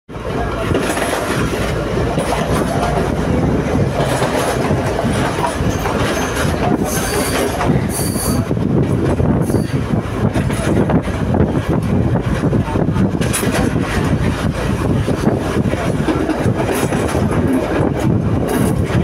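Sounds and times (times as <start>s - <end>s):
train wheels rumbling on rails: 0.1s - 19.0s
high wheel squeals: 5.6s - 8.5s, 9.4s - 9.8s.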